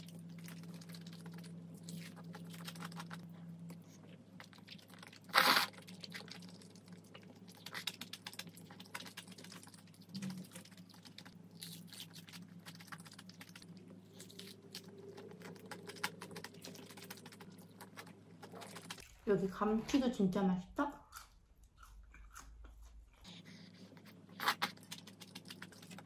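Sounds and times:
chewing crispy food: 0.0s - 19.2s, 21.0s - 26.0s
slurping noodles: 5.2s - 6.0s.

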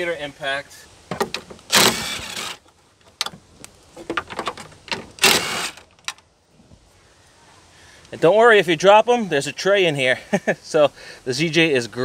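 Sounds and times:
impact driver running: 1.7s - 2.6s, 5.2s - 5.8s.

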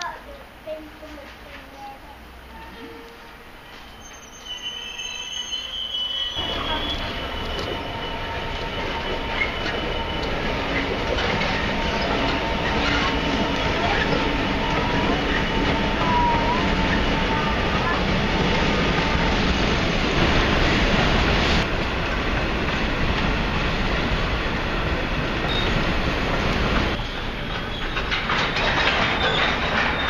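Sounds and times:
train wheels squealing: 2.5s - 18.0s, 25.4s - 25.8s, 26.9s - 30.0s
diesel locomotive rumble: 6.4s - 30.0s.

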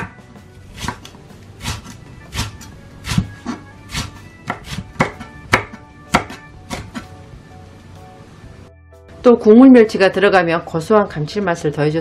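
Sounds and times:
knife chopping on wooden board: 0.0s - 7.1s.

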